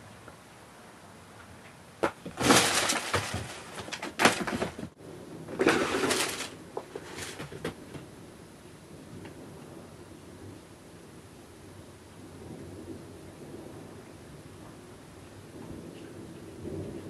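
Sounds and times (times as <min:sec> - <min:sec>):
plastic bag crinkling: 0:02.4 - 0:04.9, 0:05.6 - 0:06.6.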